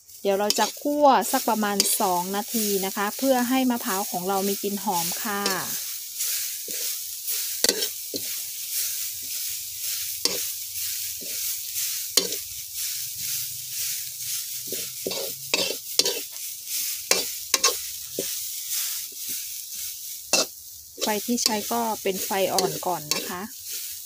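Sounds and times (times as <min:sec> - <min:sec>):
metal spoon scraping a wok: 0:00.2 - 0:24.0.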